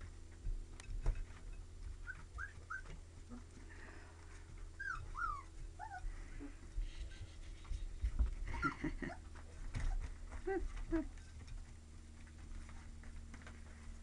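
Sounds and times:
steady low hum: 0.0 - 14.0
puppies whimpering: 2.0 - 3.5, 4.8 - 7.9.

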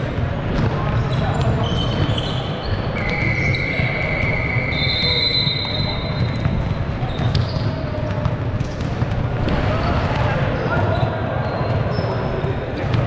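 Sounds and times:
basketball bouncing: 5.9 - 10.6, 12.8 - 13.0.

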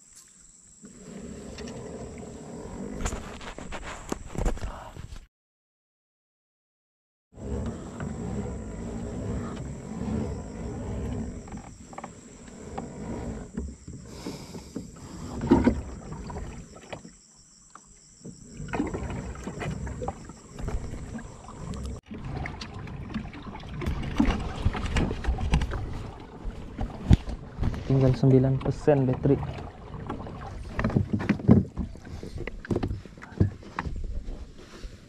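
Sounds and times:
rumbling wind and water: 7.4 - 35.0.

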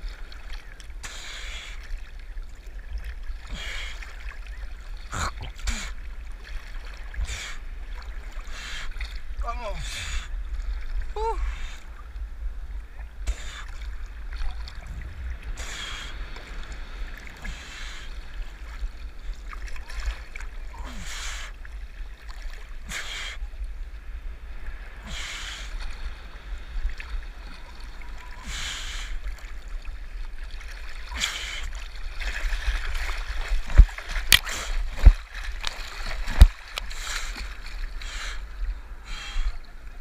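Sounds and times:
sea water sloshing and splashing: 0.0 - 40.0
waves hissing over camera: 15.5 - 18.9, 24.8 - 29.3.

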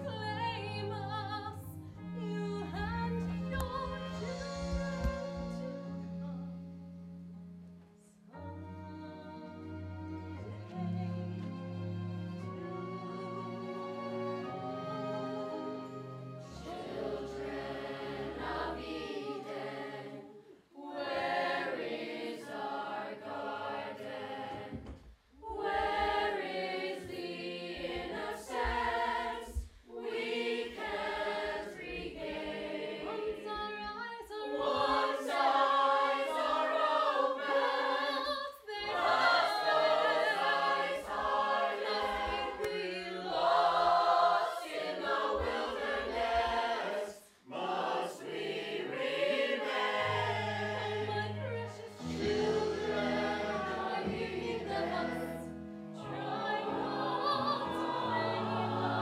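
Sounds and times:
chorus of children and adults singing: 14.3 - 59.0.

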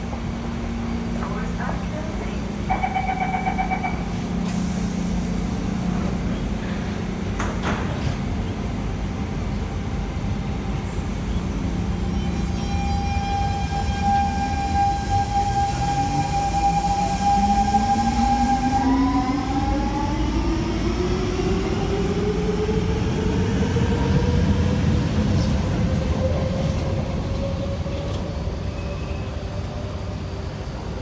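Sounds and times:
train traction motor whine: 0.0 - 31.0
door warning chime beeps: 2.7 - 4.1.

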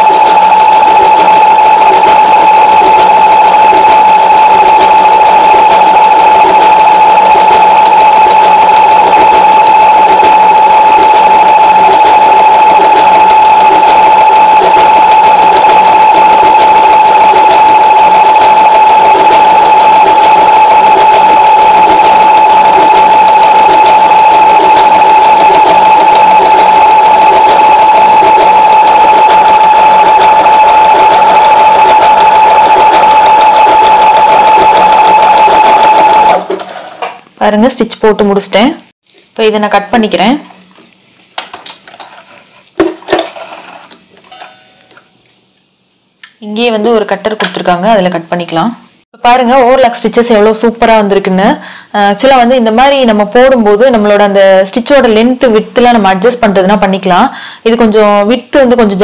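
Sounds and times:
sewing machine running: 0.0 - 37.0.

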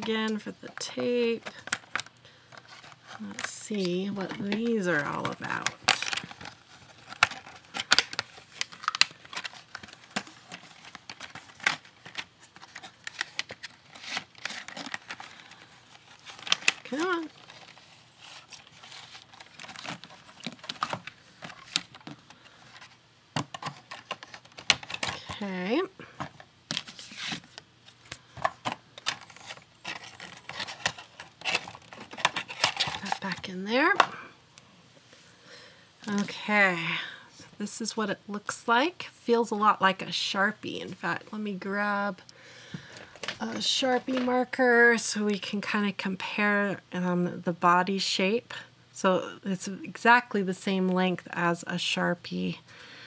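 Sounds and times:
plastic packaging crinkling and tearing: 1.4 - 34.0.

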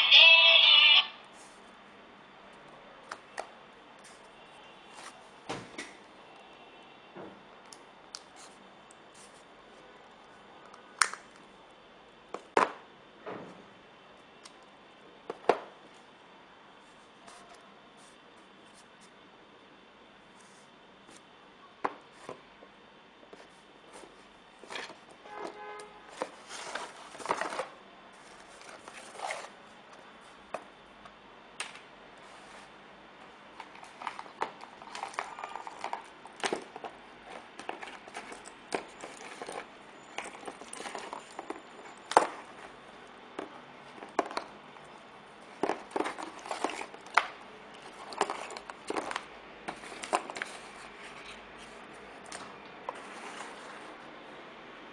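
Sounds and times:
handling noise clicks and rustling: 33.6 - 42.8, 43.4 - 53.8.

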